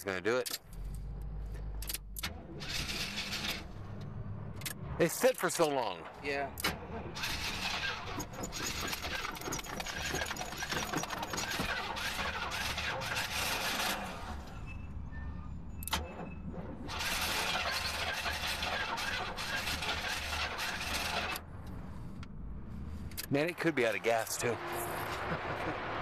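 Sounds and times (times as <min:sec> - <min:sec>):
starter motor cranking: 0:06.6 - 0:14.4, 0:16.9 - 0:21.4.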